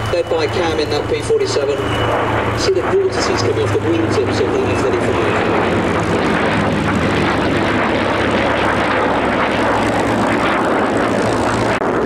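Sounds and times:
propeller planes and jet flying past: 0.0s - 12.0s.

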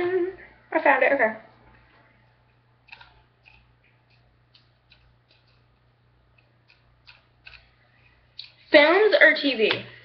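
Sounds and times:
fingers tapping on phone: 2.9s - 5.7s.

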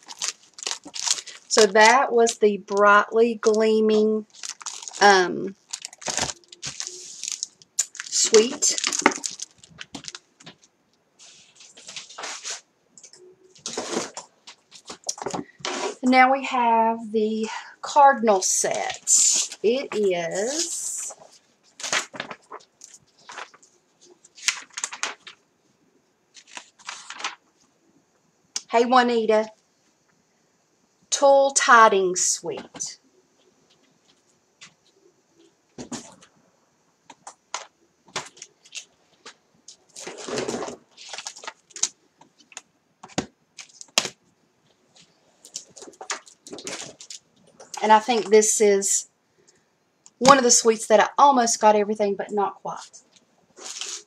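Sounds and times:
packaging rustling and crinkling: 0.0s - 2.9s, 3.6s - 16.0s, 18.8s - 25.4s, 26.3s - 27.5s, 37.1s - 48.2s, 53.0s - 54.0s.

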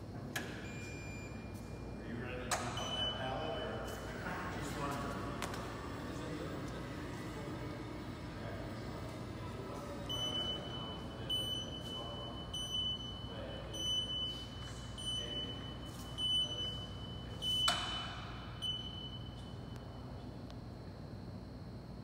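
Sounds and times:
vehicle warning buzzer: 0.6s - 20.3s.

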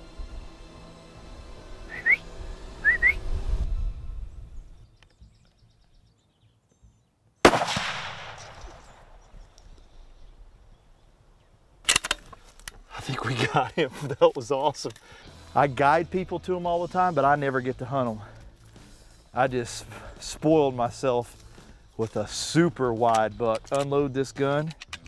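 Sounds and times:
background music: 0.0s - 4.7s, 13.0s - 25.0s
short rising whistles: 1.8s - 4.0s
rifle shot with echo: 7.4s - 9.5s.

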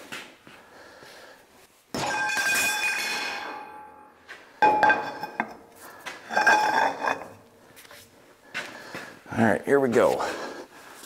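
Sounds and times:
metal tools clanking and ringing: 2.0s - 4.0s, 4.6s - 5.7s, 6.3s - 7.4s.

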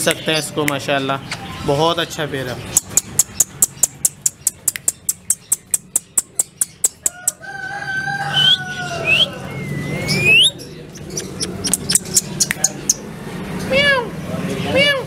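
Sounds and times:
parakeet rising whistles: 8.3s - 10.6s.

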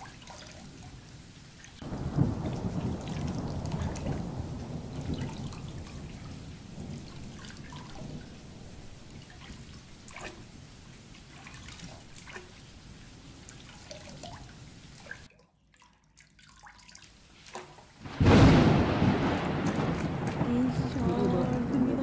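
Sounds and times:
rain drips: 0.0s - 22.0s
rumble of thunder: 1.8s - 10.0s, 18.0s - 22.0s.

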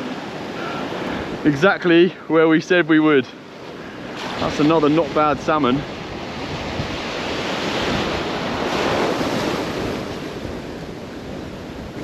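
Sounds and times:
surf and wave breaking: 0.0s - 12.0s
wind buffeting microphone: 4.0s - 12.0s.

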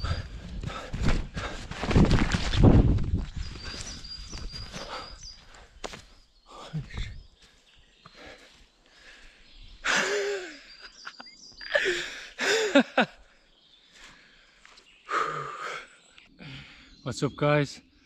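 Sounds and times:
man letting out breathy cries: 11.7s - 12.8s.

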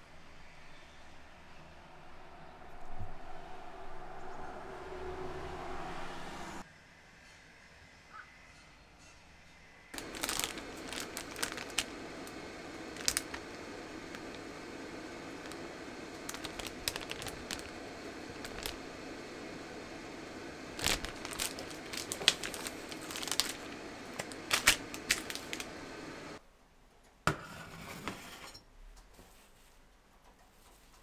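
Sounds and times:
steady background hum: 0.0s - 26.5s
plastic packet crinkling: 10.0s - 19.0s, 20.7s - 25.9s.

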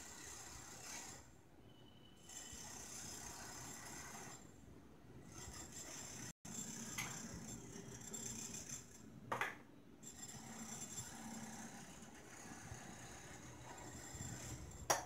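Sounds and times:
knife scraping on bread: 10.0s - 14.9s.

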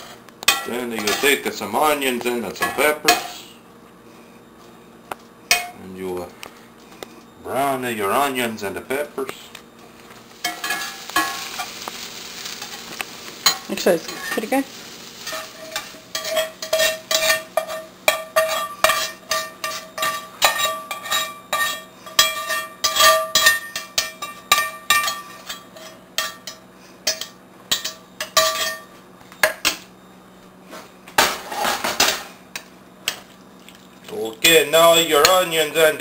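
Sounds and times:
metal spatula scraping skillet: 0.0s - 1.4s, 10.4s - 24.1s, 24.9s - 28.8s.

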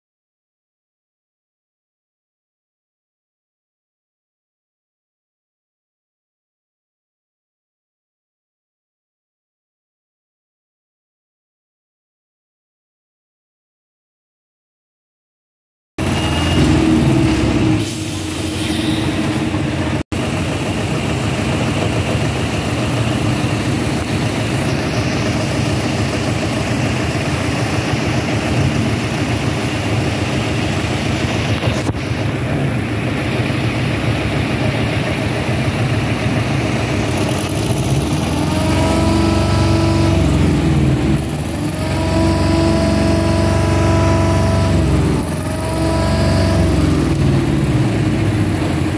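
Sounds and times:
diesel truck engine running: 16.0s - 48.9s.

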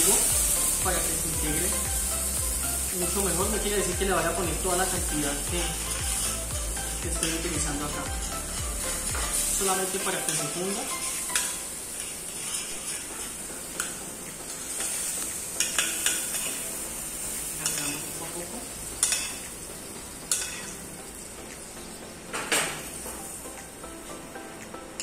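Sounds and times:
butter and cream sizzling: 0.0s - 25.0s
metal spoon scraping a pan: 10.2s - 14.0s, 20.3s - 20.8s.

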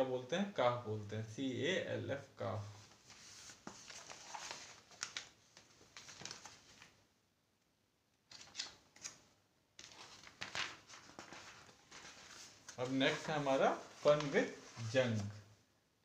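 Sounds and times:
page rustling: 2.8s - 7.0s, 8.3s - 9.2s, 9.8s - 15.4s.

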